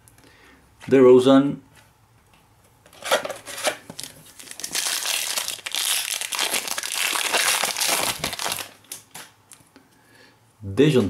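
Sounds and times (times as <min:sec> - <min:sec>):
foil wrapper crinkling: 0:03.0 - 0:09.4.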